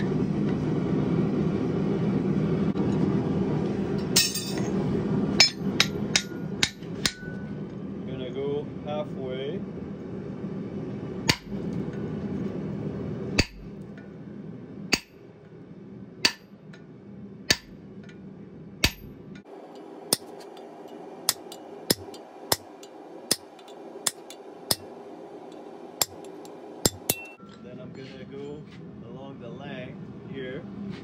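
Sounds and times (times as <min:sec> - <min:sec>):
hammer striking steel on anvil: 0:04.0 - 0:04.8, 0:05.4 - 0:07.5, 0:11.3 - 0:11.6, 0:13.4 - 0:13.8, 0:14.9 - 0:15.2, 0:16.2 - 0:16.5, 0:17.5 - 0:17.8, 0:18.8 - 0:19.2, 0:19.8 - 0:24.9, 0:26.0 - 0:27.5.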